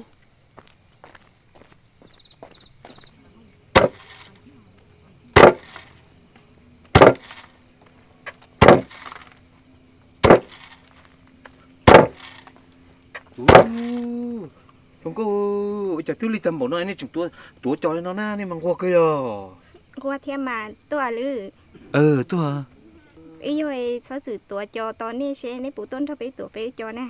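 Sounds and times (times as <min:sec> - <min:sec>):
wooden pestle thudding into mortar: 0:03.8 - 0:04.3, 0:05.4 - 0:05.9, 0:06.9 - 0:07.4, 0:08.6 - 0:09.2, 0:10.2 - 0:10.7, 0:11.9 - 0:12.3, 0:13.4 - 0:14.0.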